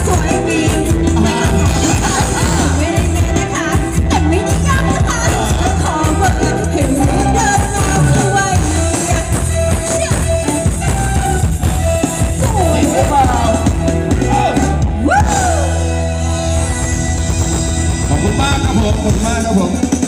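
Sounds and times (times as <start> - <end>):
steady bass beat: 0.0 - 9.7
person singing: 0.0 - 10.7
live band dance song: 0.0 - 20.0.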